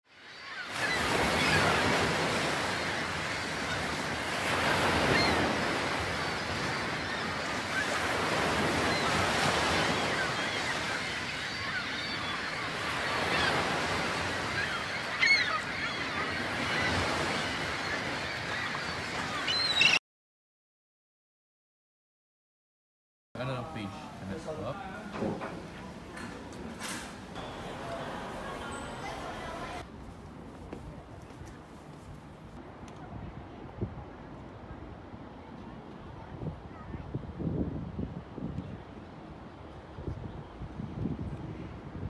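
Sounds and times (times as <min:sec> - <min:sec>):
sea surf breaking: 0:00.5 - 0:19.8, 0:23.4 - 0:29.9
gull calls: 0:04.8 - 0:20.0.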